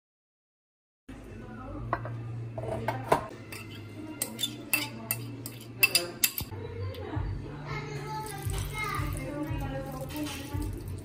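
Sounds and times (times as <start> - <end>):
knife scraping glass bowl: 3.5 - 6.5.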